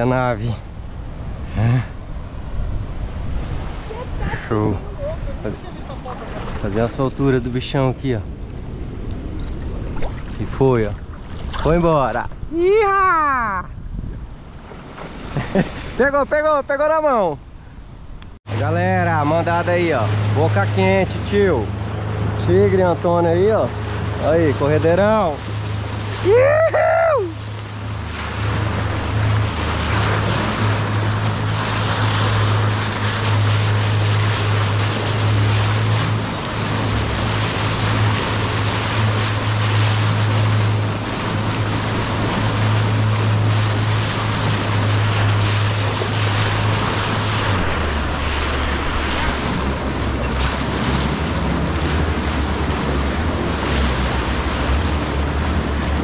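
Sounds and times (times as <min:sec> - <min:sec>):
rush of churning water: 0:00.0 - 0:17.3, 0:18.4 - 0:56.0
outboard motor running: 0:18.4 - 0:56.0.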